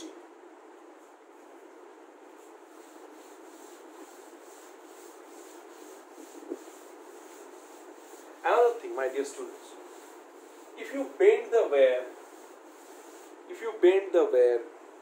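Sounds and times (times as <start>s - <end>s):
duster rubbing on chalkboard: 2.4s - 13.8s.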